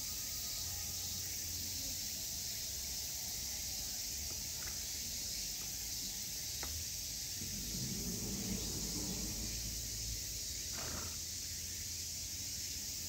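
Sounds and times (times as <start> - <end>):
outdoor background hiss: 0.0 - 13.0
low rumble: 7.2 - 10.8.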